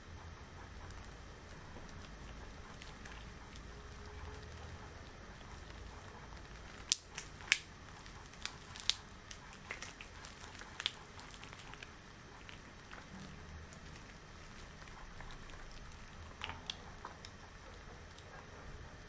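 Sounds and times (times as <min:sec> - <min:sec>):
latex gloves snapping: 0:05.4 - 0:18.2.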